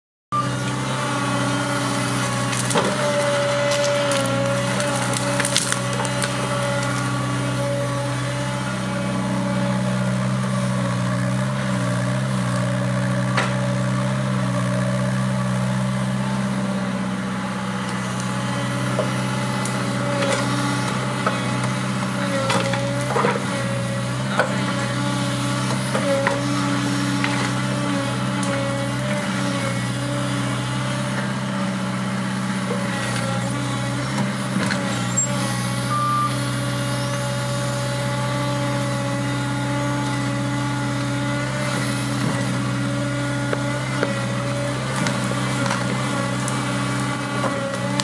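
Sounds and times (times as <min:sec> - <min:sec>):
excavator diesel engine and hydraulics: 0:00.3 - 0:48.0
roots cracking and snapping: 0:02.3 - 0:07.2.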